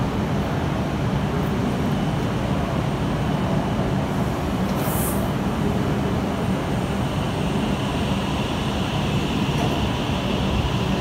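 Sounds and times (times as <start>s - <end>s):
train rumbling: 0.0s - 11.0s
short high hiss: 4.8s - 5.3s.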